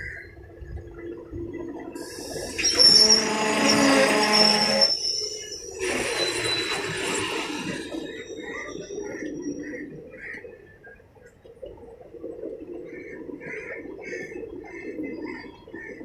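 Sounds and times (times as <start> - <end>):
rumble of train bogies: 2.0 - 9.2
train wheels squealing: 2.0 - 9.2.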